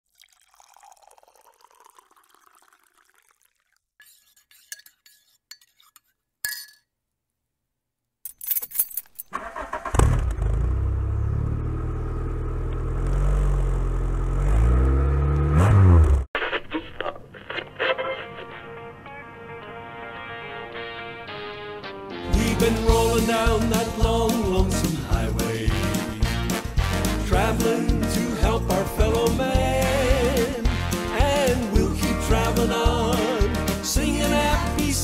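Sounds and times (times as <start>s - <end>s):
car engine starting and idling: 9.3s - 16.2s.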